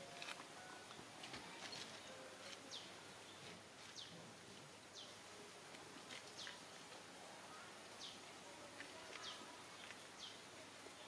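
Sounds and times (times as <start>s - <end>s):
light steady hiss: 0.0s - 11.0s.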